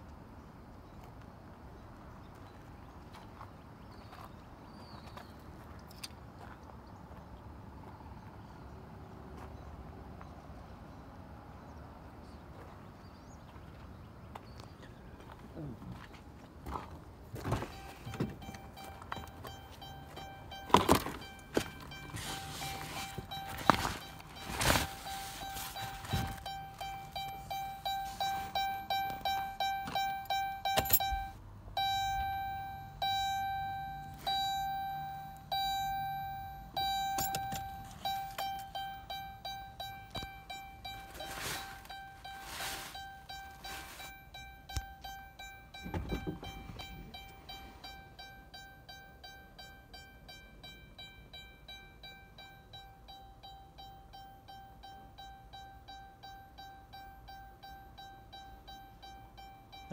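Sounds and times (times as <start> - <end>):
knocks and rustles from handling: 17.3 - 27.4
car warning chime dinging: 17.3 - 59.9.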